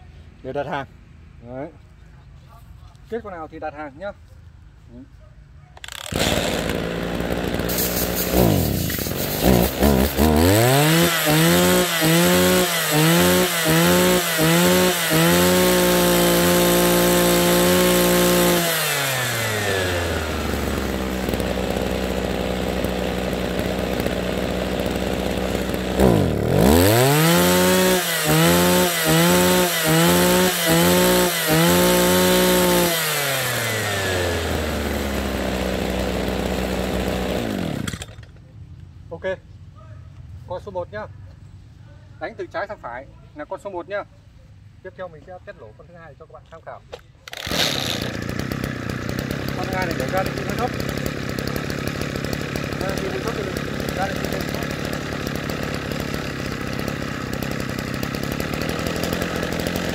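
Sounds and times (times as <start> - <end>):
brush cutter engine revving: 5.8 - 38.4, 47.2 - 59.9.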